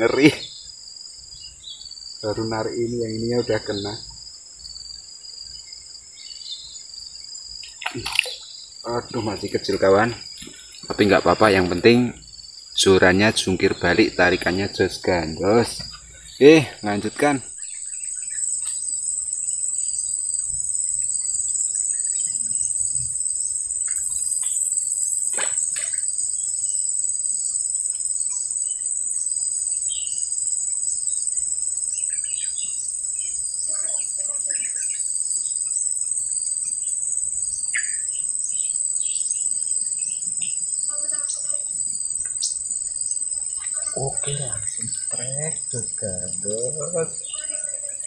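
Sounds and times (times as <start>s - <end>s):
bird chirps: 0.0s - 18.9s, 29.8s - 30.3s, 31.9s - 41.6s, 42.2s - 48.0s
insect chorus drone: 0.0s - 48.0s
pulsing insect call: 0.0s - 48.0s.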